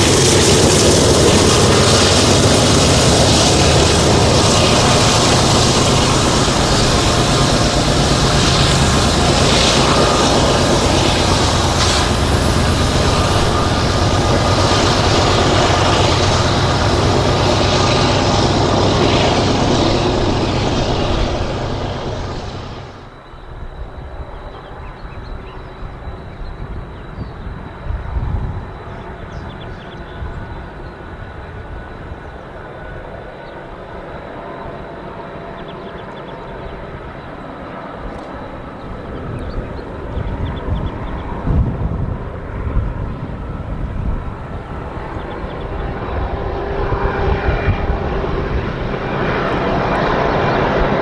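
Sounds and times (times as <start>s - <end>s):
rail rumble: 0.0s - 33.2s
diesel locomotive engines: 0.0s - 51.0s.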